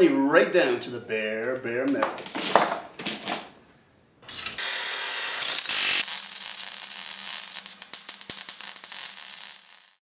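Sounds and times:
cut-off wheel grinding metal: 4.3s - 6.1s.

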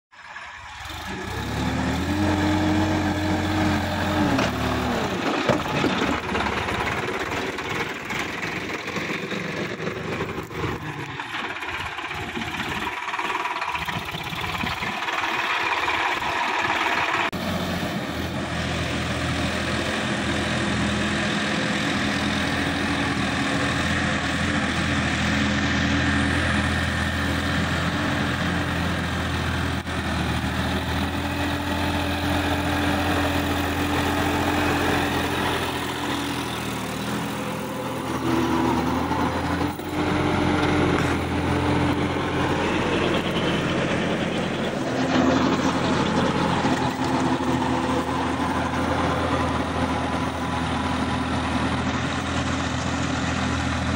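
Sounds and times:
tractor diesel engine running: 0.1s - 53.9s
rotary tiller tilling soil: 0.6s - 17.4s, 27.6s - 50.6s.

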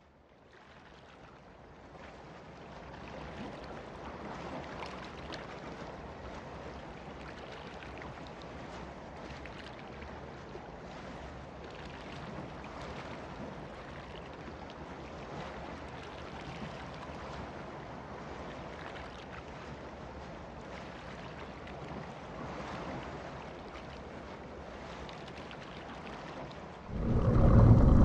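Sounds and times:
low boat engine hum: 26.9s - 28.0s
ocean rushing: 26.9s - 28.0s.

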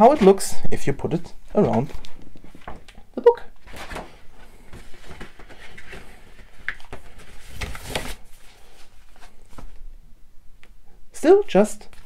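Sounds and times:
cardboard rustling and scraping: 3.6s - 9.8s.

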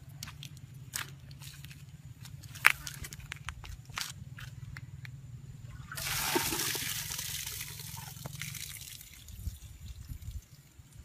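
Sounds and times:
water splashing: 5.8s - 9.3s.

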